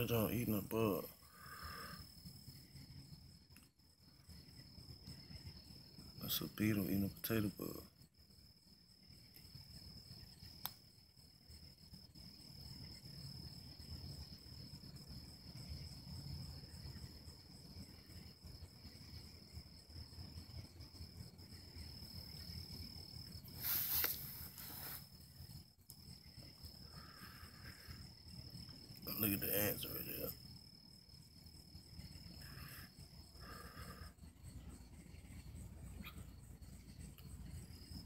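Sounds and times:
crickets trilling: 0.0 - 38.0
brief rustle: 23.6 - 25.0.

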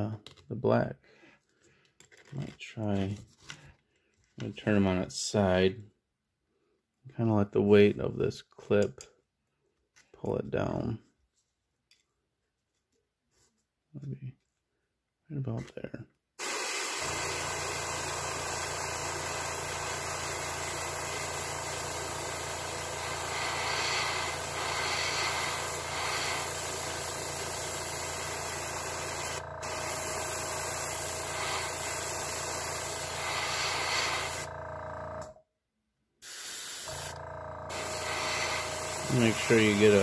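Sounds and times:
airbrush hissing: 16.4 - 34.5, 36.2 - 40.0.

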